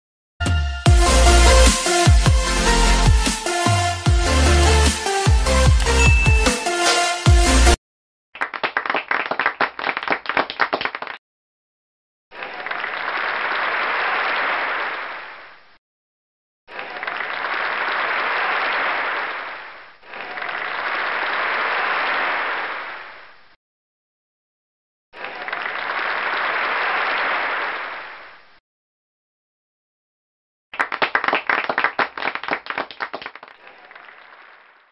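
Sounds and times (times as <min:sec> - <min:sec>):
crowd clapping: 0:08.4 - 0:11.2, 0:12.3 - 0:15.6, 0:16.7 - 0:23.2, 0:25.2 - 0:28.4, 0:30.8 - 0:34.9
rapid hand claps: 0:08.4 - 0:11.2, 0:30.8 - 0:34.7.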